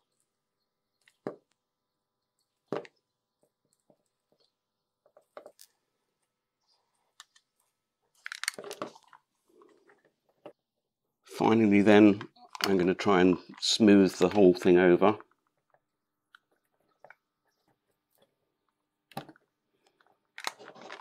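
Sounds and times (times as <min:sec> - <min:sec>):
plastic handling noise: 0:07.0 - 0:10.6, 0:12.0 - 0:21.0.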